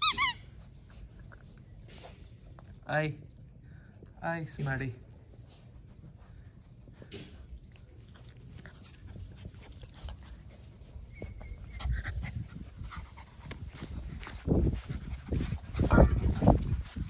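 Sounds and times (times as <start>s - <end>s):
small dog noises: 0.0s - 17.0s
puppies scuffling: 4.4s - 17.0s.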